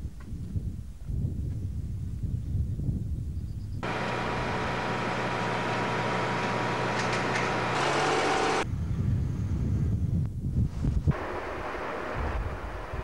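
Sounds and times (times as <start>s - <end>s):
wind rumbling on microphone: 0.0s - 4.8s, 8.6s - 13.0s
crane engine humming: 3.8s - 8.7s.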